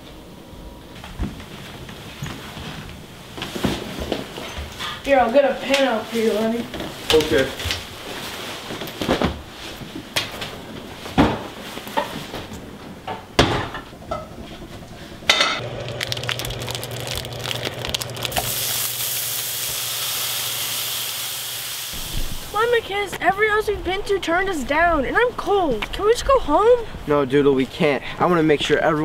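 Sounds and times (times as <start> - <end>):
hot dogs sizzling in a pan: 15.6 - 22.7.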